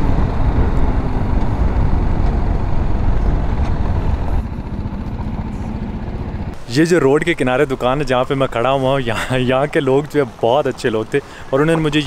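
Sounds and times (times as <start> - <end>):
wind noise: 0.0 - 6.1
motorcycle engine running: 0.0 - 6.6.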